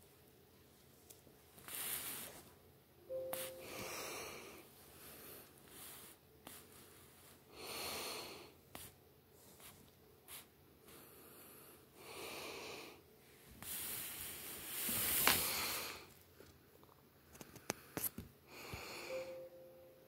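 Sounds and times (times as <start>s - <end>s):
person breathing: 3.4s - 8.9s, 10.8s - 16.2s, 17.4s - 19.5s.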